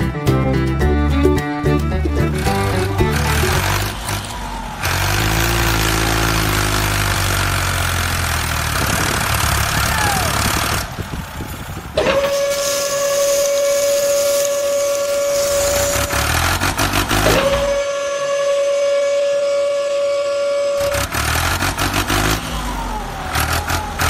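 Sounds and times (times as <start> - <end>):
small tractor engine rumbling: 0.0 - 24.0
high-pitched motor whine: 8.7 - 18.0.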